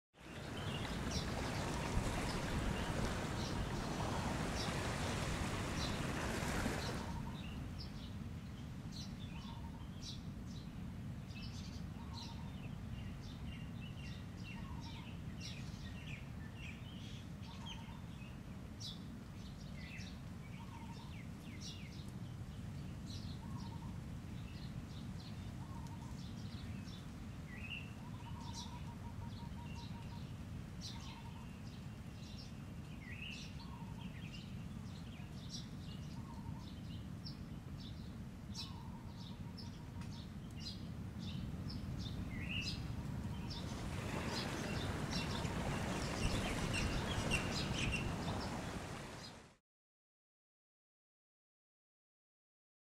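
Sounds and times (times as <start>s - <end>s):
birds chirping and calling: 0.4s - 7.6s, 30.8s - 31.5s, 38.6s - 41.4s, 42.3s - 48.8s.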